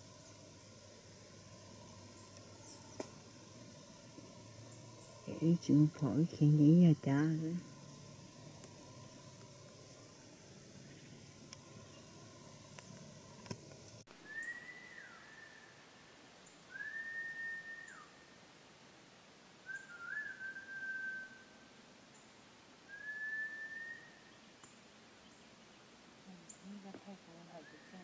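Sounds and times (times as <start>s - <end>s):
long whistled notes: 14.2s - 15.9s, 16.7s - 18.2s, 19.6s - 21.6s, 22.9s - 24.2s.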